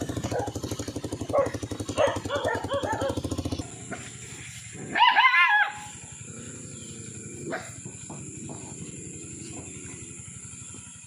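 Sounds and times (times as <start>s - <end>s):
small engine running: 0.0s - 11.0s
dog crying: 4.9s - 6.0s.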